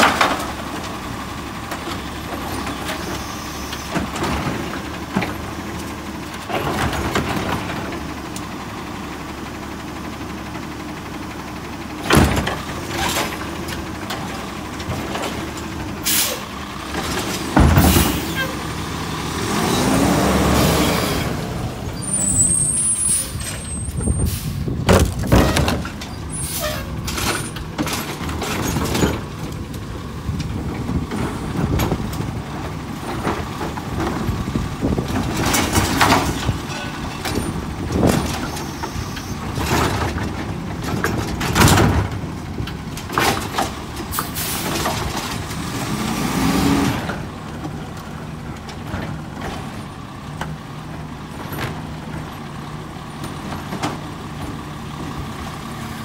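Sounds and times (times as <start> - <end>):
garbage truck engine running: 0.0 - 56.0
truck engine revving: 12.0 - 38.6, 43.4 - 49.4
air brakes hissing: 16.0 - 16.5, 22.0 - 24.7.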